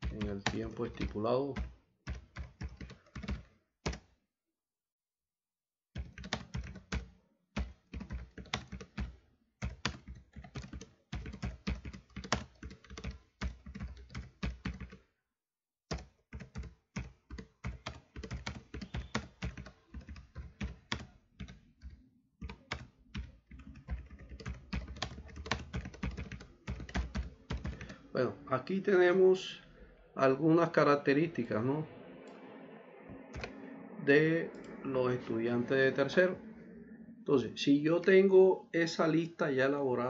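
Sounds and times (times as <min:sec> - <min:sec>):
keyboard typing clicks: 0:15.9 - 0:28.0, 0:33.2 - 0:33.5.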